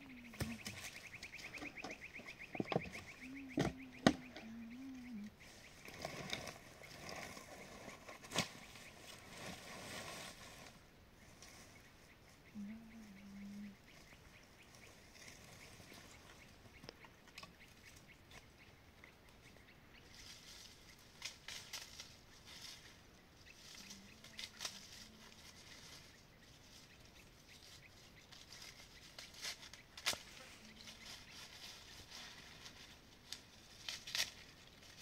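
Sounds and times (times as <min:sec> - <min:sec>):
low hum: 0:00.0 - 0:09.3
dry leaves and twigs crackling: 0:00.0 - 0:35.0.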